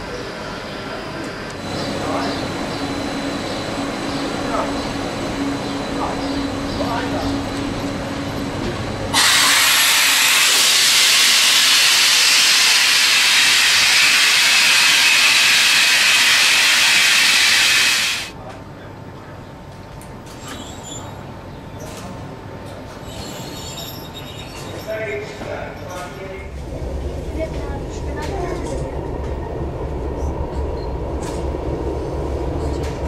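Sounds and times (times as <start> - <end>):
compressed air hissing: 9.1 - 18.3.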